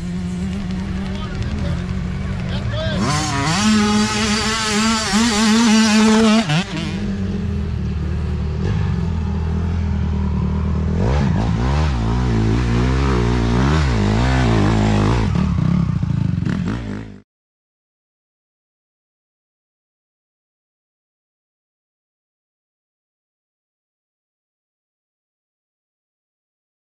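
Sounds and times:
dirt bike engines revving: 0:00.0 - 0:17.2.

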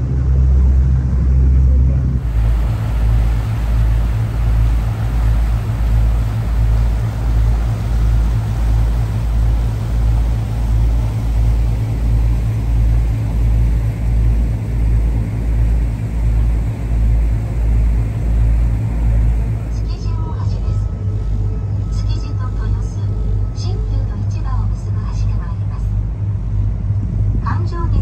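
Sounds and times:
boat engine rumble: 0:00.0 - 0:28.0
water churning: 0:02.1 - 0:24.3.

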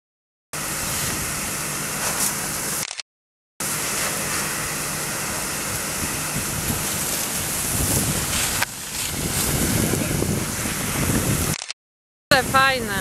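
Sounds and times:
fire hoses spraying water: 0:00.6 - 0:02.9, 0:03.6 - 0:11.6.

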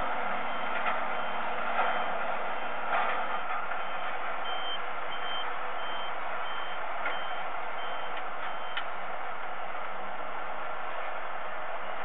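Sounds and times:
reversing alarm beeping: 0:00.4 - 0:02.2, 0:03.4 - 0:08.9.

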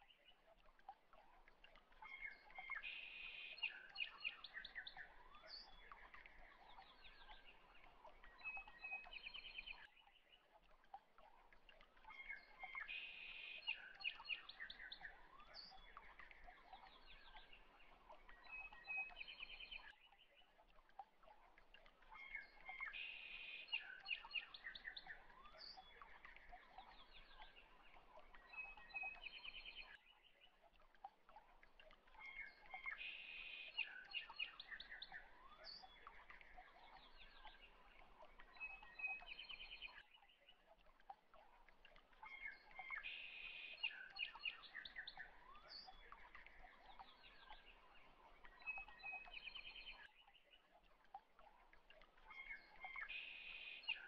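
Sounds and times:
birds chirping and trilling: 0:31.9 - 0:40.3, 0:41.3 - 0:54.0.

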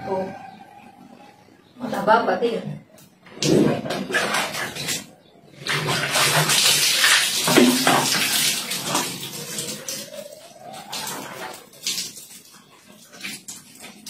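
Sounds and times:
water pouring and splashing on tiles: 0:03.4 - 0:14.0.

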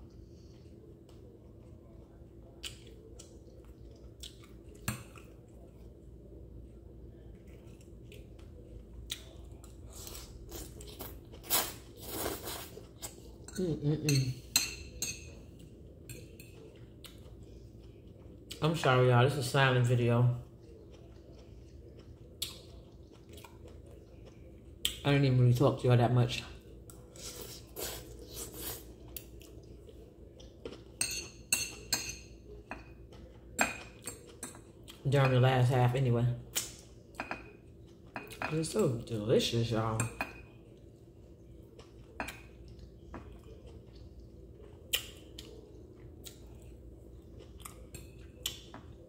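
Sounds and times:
soft eating sounds: 0:00.0 - 0:49.0
chewing mouth noises: 0:02.5 - 0:06.0, 0:20.6 - 0:25.0, 0:41.4 - 0:48.9.

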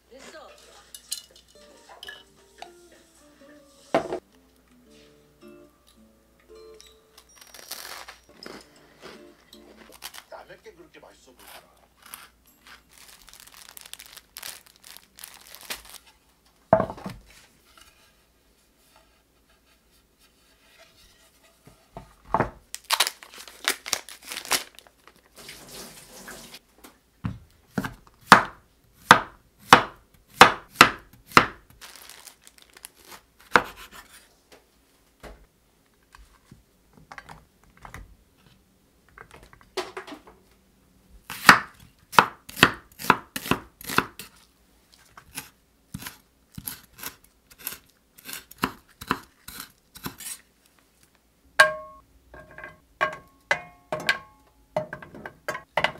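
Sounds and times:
plastic packaging crinkling and tearing: 0:07.3 - 0:08.6, 0:09.8 - 0:10.4, 0:11.4 - 0:16.1, 0:22.7 - 0:26.6, 0:31.8 - 0:33.3
knife chopping on cutting board: 0:27.7 - 0:31.6, 0:33.5 - 0:34.1, 0:41.3 - 0:44.3, 0:45.3 - 0:50.4.

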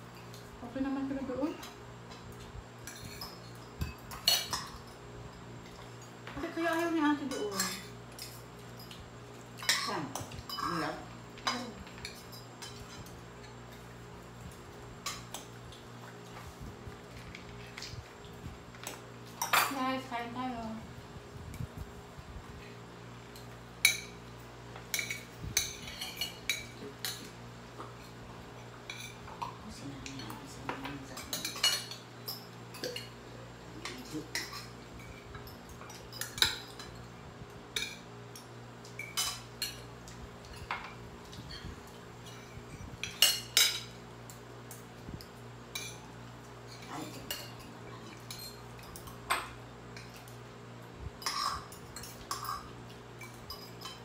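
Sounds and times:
cutlery clinking on ceramic plates: 0:02.8 - 0:05.0, 0:09.6 - 0:10.9, 0:30.2 - 0:33.2, 0:33.8 - 0:37.0, 0:40.5 - 0:44.0, 0:51.2 - 0:54.0.

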